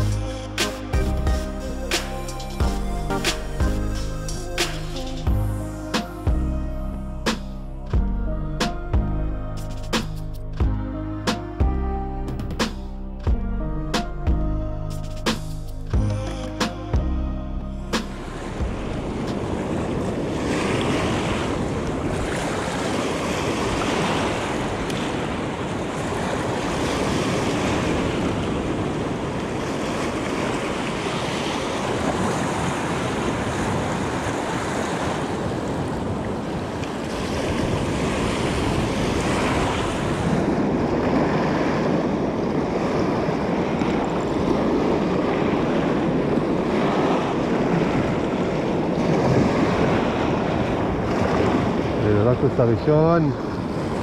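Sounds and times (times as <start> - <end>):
sea waves washing: 0.0 - 9.0, 17.8 - 54.0
wind gusting on microphone: 18.3 - 54.0.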